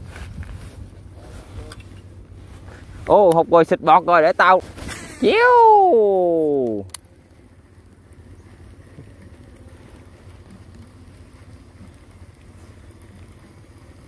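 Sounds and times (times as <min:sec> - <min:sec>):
people talking: 0:03.1 - 0:06.9.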